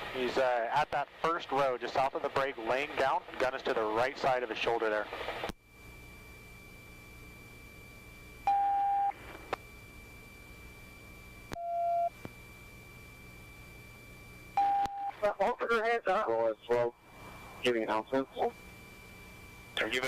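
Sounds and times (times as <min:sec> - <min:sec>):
radio click: 0:05.1 - 0:05.6
low hum: 0:05.6 - 0:20.0.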